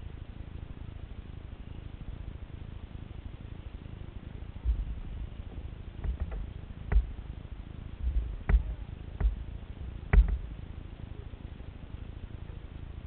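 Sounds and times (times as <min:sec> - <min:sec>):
low steady rumble: 0:00.0 - 0:13.0
paddles knocking plastic kayak hull: 0:06.0 - 0:07.2, 0:10.1 - 0:10.5.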